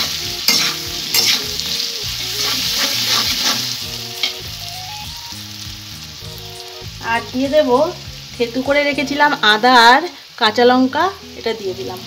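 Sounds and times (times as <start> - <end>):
metal spatula scraping a pan: 0.0 - 4.4
potatoes sizzling in hot oil: 0.0 - 12.0.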